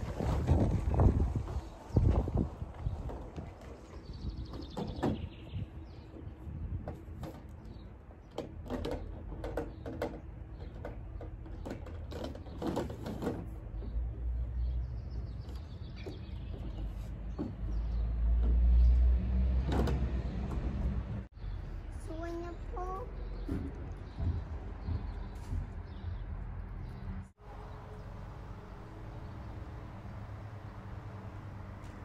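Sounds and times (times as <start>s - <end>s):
plastic panels knocking and clattering: 6.8s - 14.2s.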